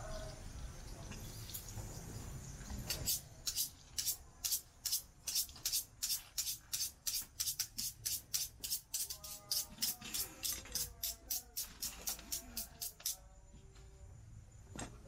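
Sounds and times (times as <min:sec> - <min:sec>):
shaker or hi-hat beat: 0:03.0 - 0:13.2.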